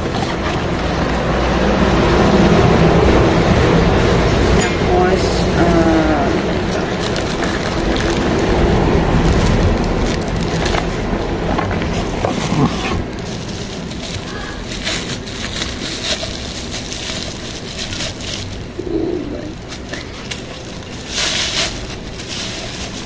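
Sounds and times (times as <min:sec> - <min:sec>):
low background rumble: 0:00.0 - 0:23.0
plastic packaging crinkling: 0:06.1 - 0:23.0.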